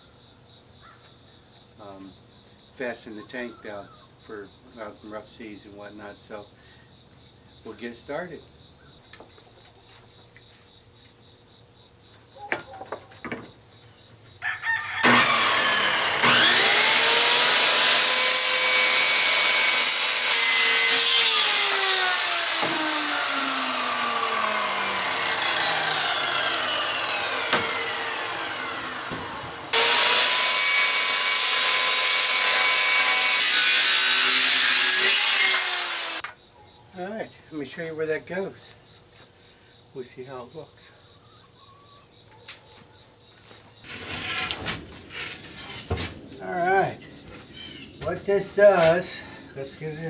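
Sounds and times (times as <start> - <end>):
circular saw cutting plywood: 15.0 - 36.3, 43.8 - 46.1.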